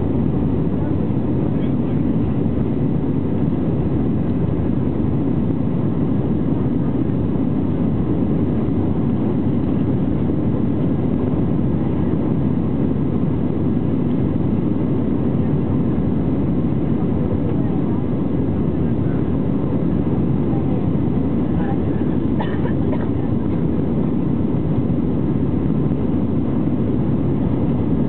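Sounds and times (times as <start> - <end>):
jet engine rumble in cabin: 0.0 - 28.0.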